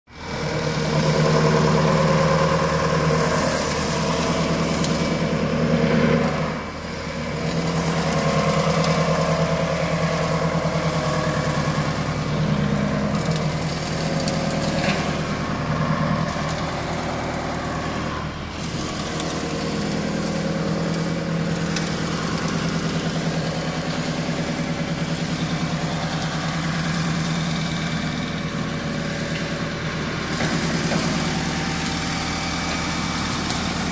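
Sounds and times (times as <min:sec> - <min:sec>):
wood shaving machine running: 0:00.1 - 0:33.9.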